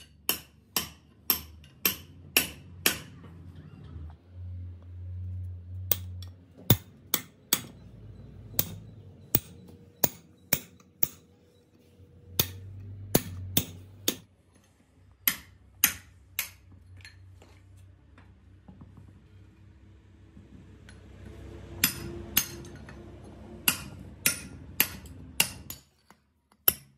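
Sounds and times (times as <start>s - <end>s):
hammer striking metal: 0.0s - 3.2s, 5.8s - 11.4s, 12.3s - 14.3s, 15.2s - 16.7s, 21.7s - 23.0s, 23.6s - 25.9s.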